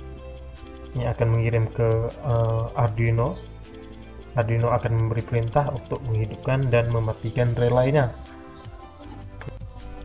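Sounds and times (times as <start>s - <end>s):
soft background music: 0.0s - 10.0s
person narrating: 4.4s - 8.2s.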